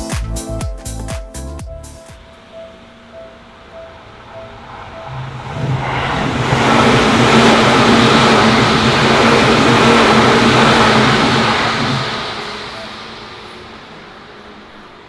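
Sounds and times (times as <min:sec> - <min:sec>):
train wheels rumbling on rails: 0:04.5 - 0:15.0.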